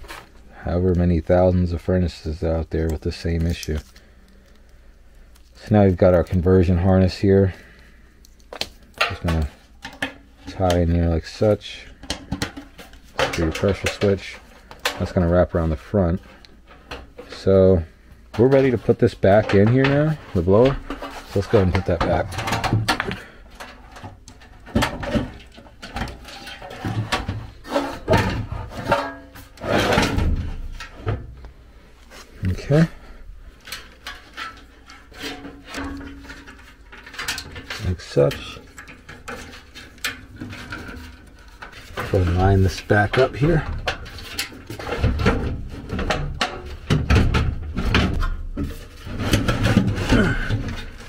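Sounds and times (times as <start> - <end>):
sheet metal scraping and knocking: 18.3 - 31.4, 33.6 - 51.0.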